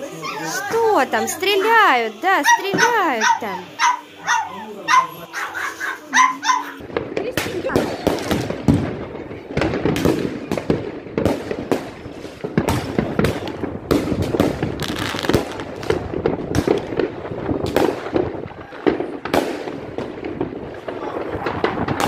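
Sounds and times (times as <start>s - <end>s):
fireworks bangs and crackles: 0.0s - 22.0s.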